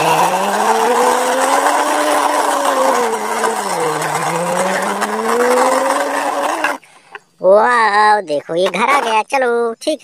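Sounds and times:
person imitating engine noise: 0.0 - 7.2.

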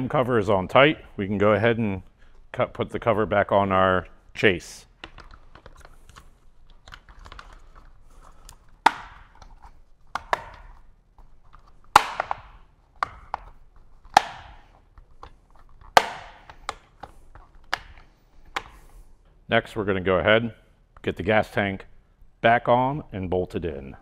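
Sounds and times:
plastic cover clicks and knocks: 8.4 - 10.9, 11.5 - 18.8.

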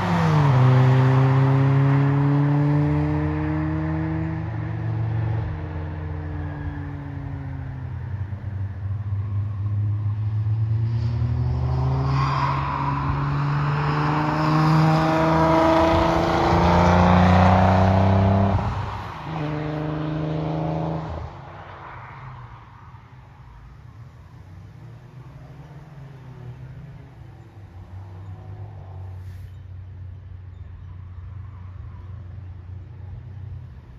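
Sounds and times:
car engine accelerating past: 0.0 - 7.7, 9.2 - 21.9.

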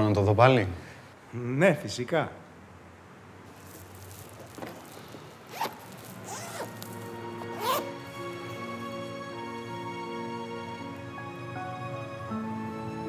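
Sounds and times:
zipper pulled open: 3.6 - 8.1
soft background music: 5.5 - 13.0.

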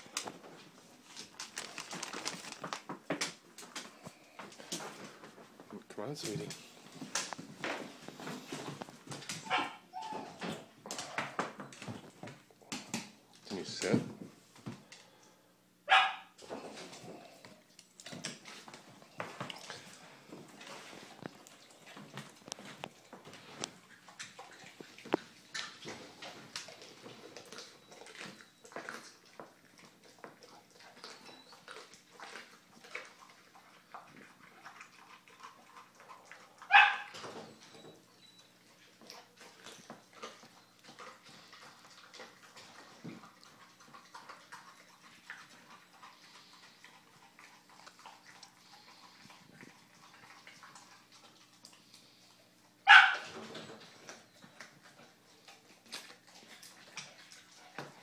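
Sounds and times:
dog chewing and crunching: 0.0 - 15.2, 15.9 - 58.0
dog vocalizations: 8.5 - 11.6, 15.9 - 58.0.

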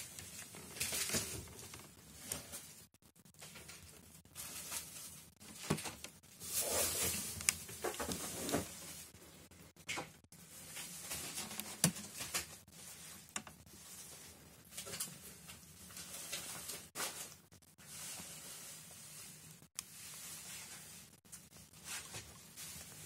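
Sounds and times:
paper rustling: 0.0 - 9.2.

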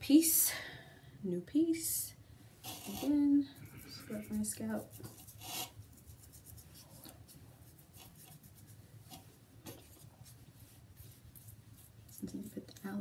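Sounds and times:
leaf rubbing against hair: 2.6 - 13.0.

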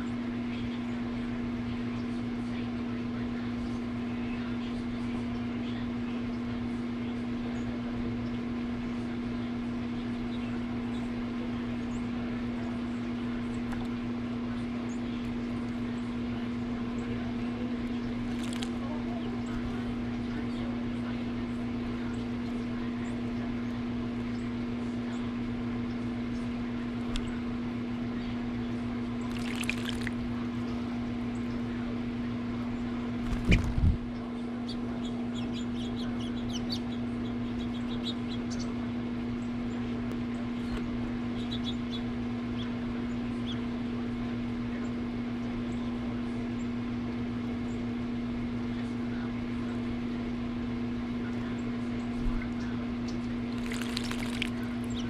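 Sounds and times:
steady low hum: 0.0 - 55.0
bird splashing in water: 18.2 - 18.8, 29.2 - 30.2, 33.2 - 33.9, 53.5 - 55.0
water splashing: 18.3 - 18.8, 29.3 - 30.2, 53.5 - 54.8
water trickling: 29.3 - 30.2, 53.5 - 54.6.

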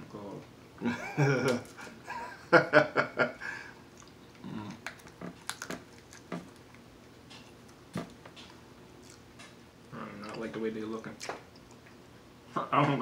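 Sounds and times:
man laughing: 0.8 - 3.7
wet chewing and lip smacks: 3.8 - 9.6, 10.2 - 12.0.

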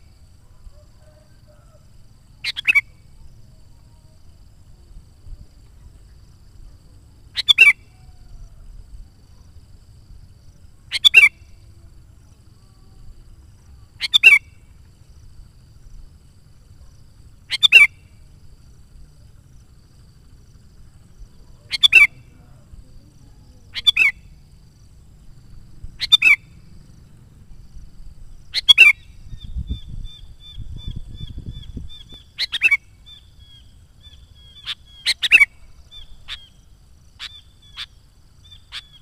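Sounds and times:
bird calling: 0.0 - 3.8, 6.8 - 8.8, 10.8 - 11.7, 13.7 - 14.8, 16.5 - 18.5, 19.2 - 27.1, 28.2 - 39.0.

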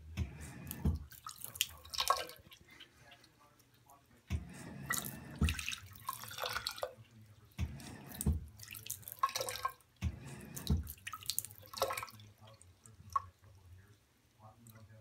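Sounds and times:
water splashing and dripping: 0.2 - 13.6
faucet running into sink: 4.3 - 7.0, 7.6 - 12.4.

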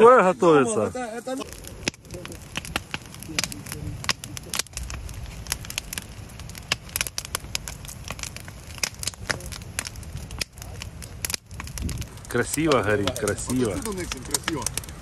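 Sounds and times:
campfire crackling and popping: 0.0 - 15.0
wind rumble on microphone: 1.4 - 15.0.

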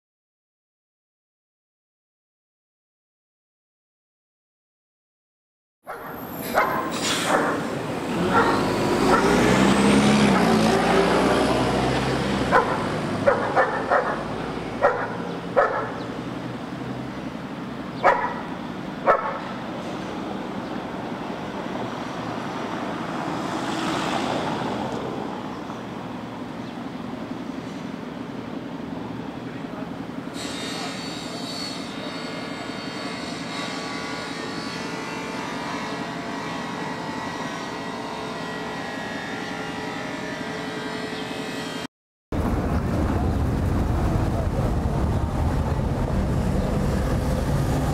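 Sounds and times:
heavy vehicle passing: 6.1 - 26.5, 42.4 - 47.9.

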